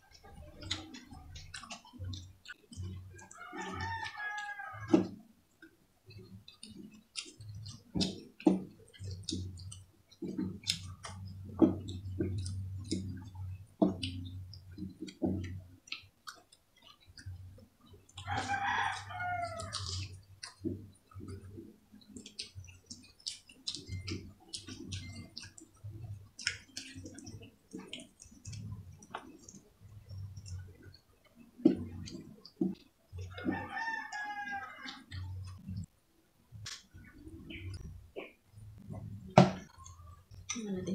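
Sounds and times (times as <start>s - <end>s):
chewing and lip smacks: 0.0s - 35.9s, 36.5s - 40.7s
low steady hum: 0.0s - 40.9s
rooster crowing: 3.3s - 5.0s, 18.2s - 19.8s, 33.4s - 35.1s.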